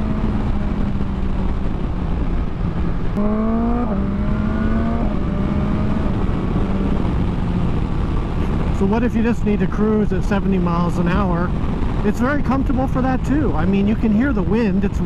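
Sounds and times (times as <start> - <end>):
motorcycle engine revving: 0.0 - 9.7
wind rush: 0.0 - 15.0.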